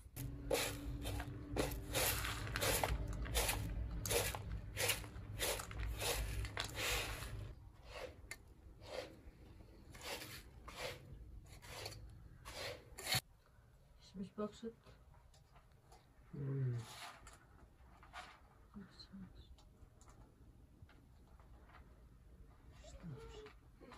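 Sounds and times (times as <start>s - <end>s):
hand rustling through dry rice: 0.2s - 7.5s.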